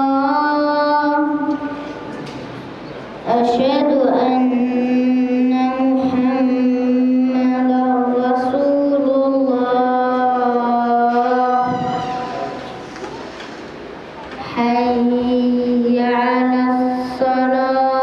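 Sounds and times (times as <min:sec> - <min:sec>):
boy chanting into microphone: 0:00.0 - 0:02.2, 0:03.2 - 0:12.8, 0:14.4 - 0:18.0.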